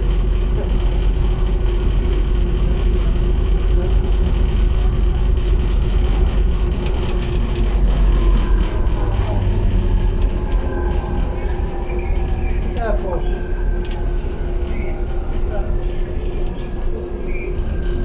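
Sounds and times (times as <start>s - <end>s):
constant train hum: 0.0s - 18.0s
faint whine gliding in pitch: 0.0s - 18.0s
wheels rumbling on rail: 0.0s - 18.0s.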